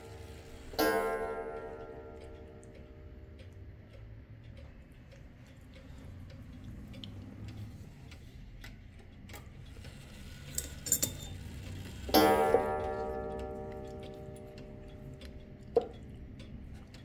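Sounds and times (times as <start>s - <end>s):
clock gong ringing: 0.0s - 3.5s, 10.0s - 15.8s
clock hand clicks: 0.0s - 17.0s
wall clock ticking: 0.0s - 17.0s.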